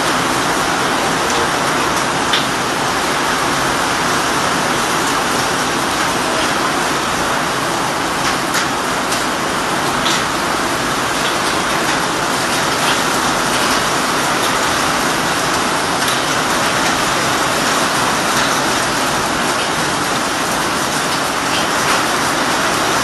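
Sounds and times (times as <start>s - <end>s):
torrential rain on wet pavement: 0.0s - 23.0s.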